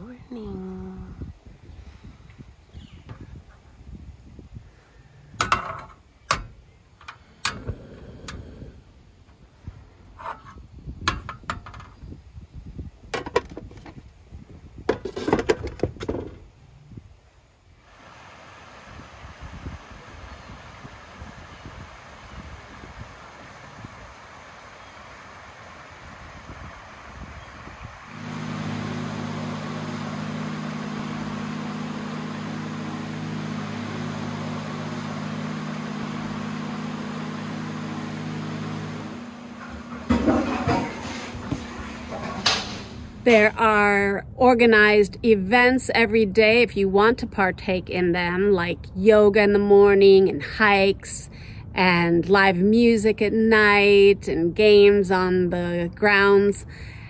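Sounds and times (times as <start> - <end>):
ventilation blower humming: 0.0 - 13.1, 16.2 - 45.8
kitchen items clicking and clattering: 39.6 - 43.0.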